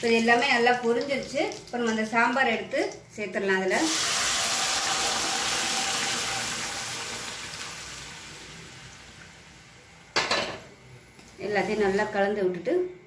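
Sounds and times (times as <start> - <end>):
hot oil sizzling: 0.0 - 2.8, 3.6 - 10.3.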